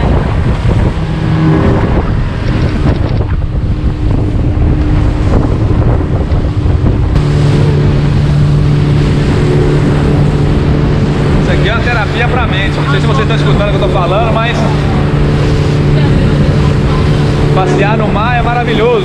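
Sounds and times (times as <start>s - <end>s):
outboard motor drone: 0.0s - 19.0s
water rushing along hull: 0.0s - 19.0s
wind buffeting microphone: 0.0s - 19.0s.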